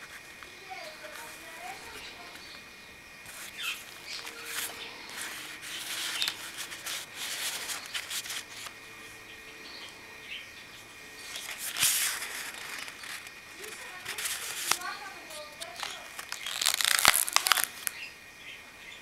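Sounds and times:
pages rustling and crinkling: 0.0s - 2.5s, 3.2s - 8.8s, 11.2s - 18.0s.

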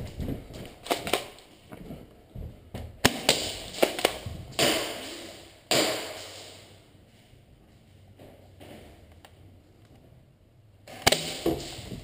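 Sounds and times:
sharp knocks and cracks: 0.2s - 1.5s, 2.7s - 6.7s, 10.9s - 12.0s.

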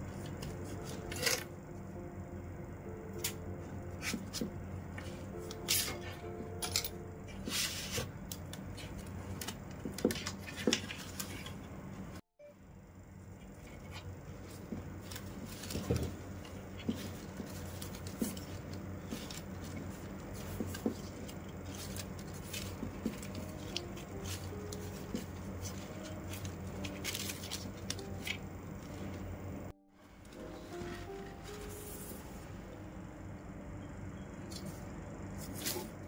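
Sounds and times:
steady low hum: 0.0s - 36.0s
plastic strands clicking and rustling: 14.4s - 29.0s.

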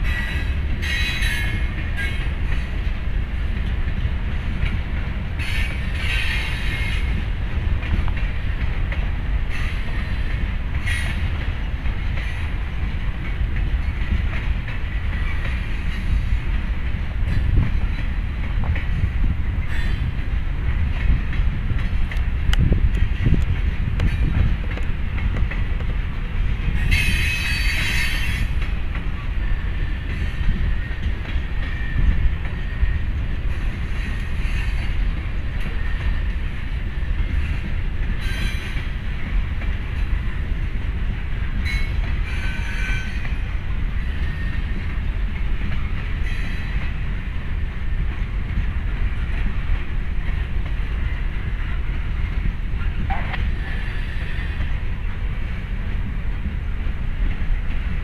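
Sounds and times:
train wheels rumbling on rails: 0.0s - 58.0s
high-pitched wheel squeals: 41.7s - 43.4s.

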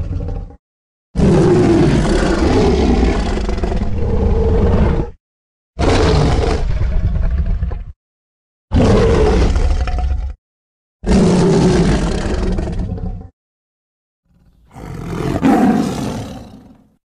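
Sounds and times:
tiger roaring: 0.0s - 0.6s, 1.2s - 5.2s, 5.8s - 7.8s, 8.7s - 10.4s, 11.0s - 13.3s, 14.3s - 16.9s.

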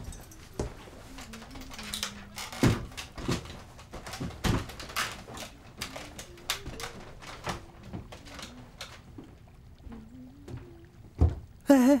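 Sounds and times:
footsteps on wooden ladder: 2.3s - 11.5s.

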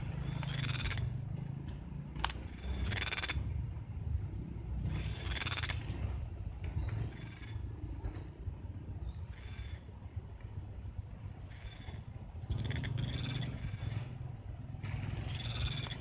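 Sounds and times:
high-pitched animal calls: 0.2s - 1.1s, 2.4s - 3.4s, 4.8s - 5.8s, 9.2s - 9.9s, 11.4s - 14.1s, 15.3s - 16.0s.

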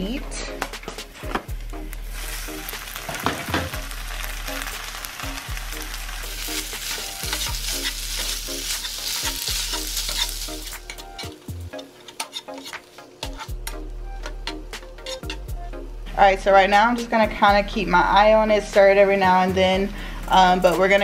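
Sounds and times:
meat sizzling in a skillet: 1.7s - 11.7s
spatula scraping and tapping pan: 6.6s - 15.5s.

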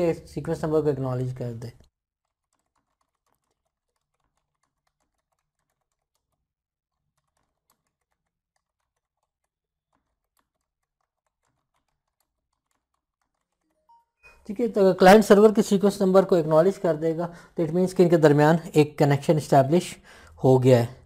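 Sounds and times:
keyboard typing: 0.1s - 18.3s.

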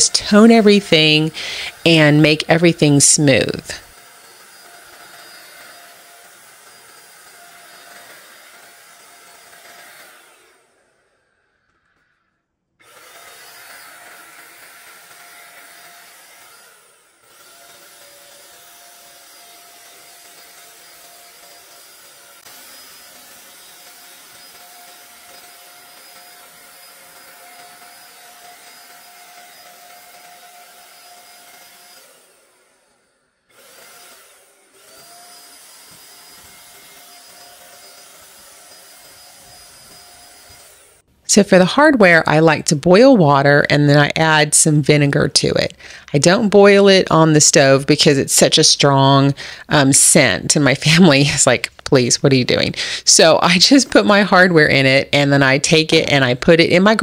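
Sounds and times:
electric paint sprayer whining: 0.0s - 57.0s.

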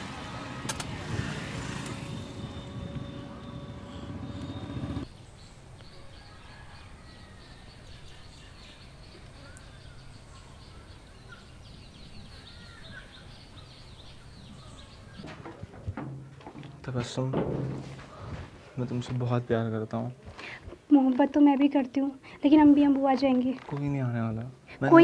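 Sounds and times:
vehicle rumble: 0.0s - 5.1s
birds chirping: 0.0s - 17.2s.

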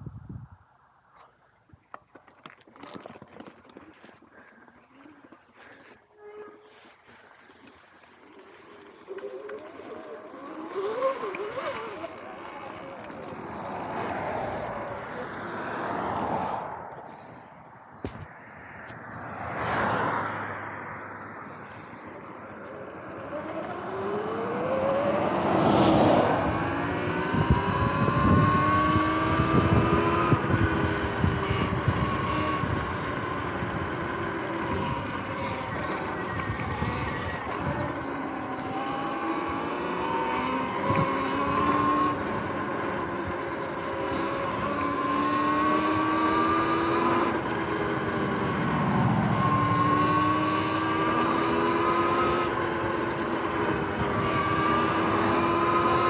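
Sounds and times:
wind buffeting microphone: 0.0s - 0.7s, 25.8s - 51.4s
electric motor whining: 4.9s - 15.5s, 23.0s - 56.0s.

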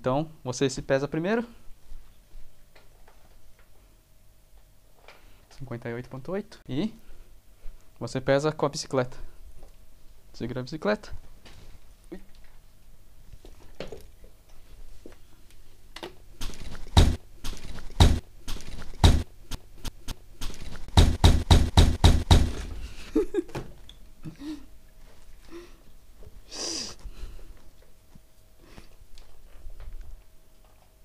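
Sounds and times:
sharp knocks and thuds: 16.4s - 22.8s.

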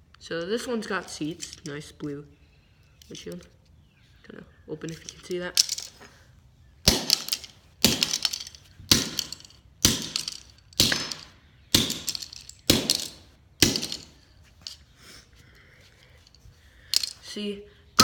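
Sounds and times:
hammer striking toy car: 6.9s - 14.2s.

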